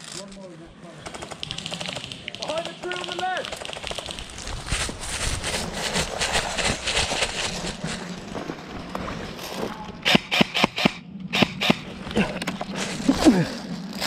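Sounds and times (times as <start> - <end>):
airsoft rifle rapid shots: 1.0 - 4.4, 10.0 - 11.8
rustling handling noise: 2.0 - 10.0.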